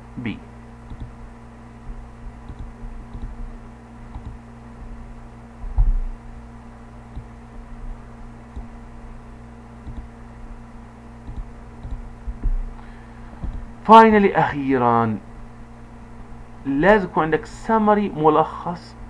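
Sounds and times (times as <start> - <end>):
low electrical hum: 0.0 - 19.0
soft low thumps: 0.8 - 9.2, 9.8 - 10.2, 11.2 - 13.8.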